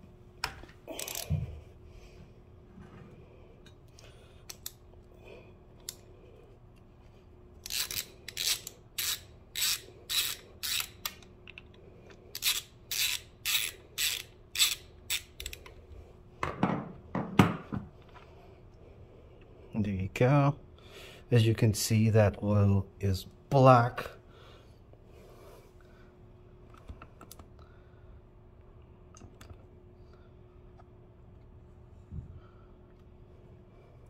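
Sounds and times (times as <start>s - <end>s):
socket ratchet clicking: 7.6s - 11.6s, 12.3s - 15.7s.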